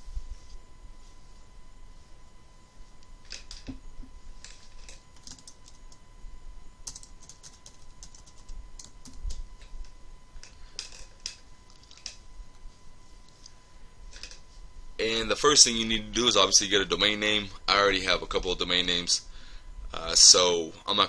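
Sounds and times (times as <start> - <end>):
keyboard typing clicks: 4.5 - 6.0, 6.8 - 9.4.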